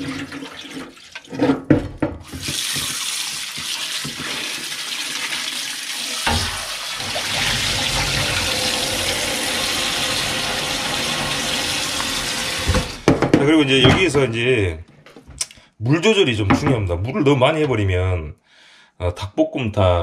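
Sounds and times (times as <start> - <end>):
tap water splashing into pan: 0.0 - 13.2
knocks: 12.6 - 14.2.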